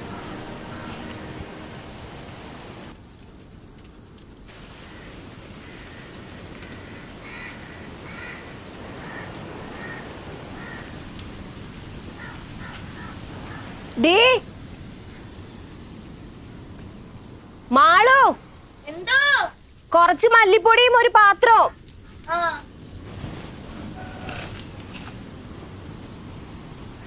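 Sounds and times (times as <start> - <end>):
oil crackling and bubbling: 2.6 - 13.7, 20.8 - 27.0.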